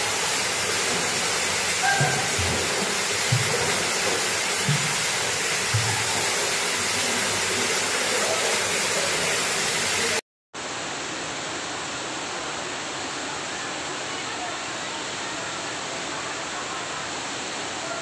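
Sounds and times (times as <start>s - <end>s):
waterfall rushing into pool: 0.0s - 18.0s
low thumps: 1.9s - 6.4s.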